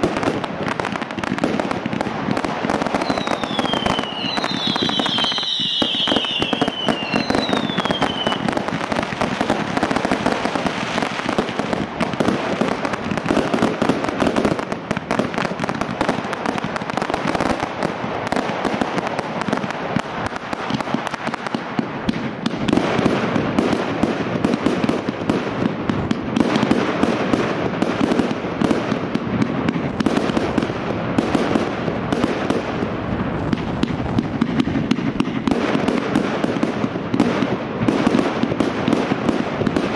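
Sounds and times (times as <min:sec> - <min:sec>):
fireworks bangs and crackling: 0:00.0 - 0:39.9
falling firework whistles: 0:02.7 - 0:11.3.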